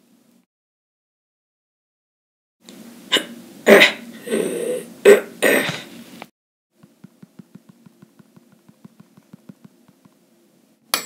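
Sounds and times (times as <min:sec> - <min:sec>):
person making mouth sound effects: 0:06.8 - 0:10.1.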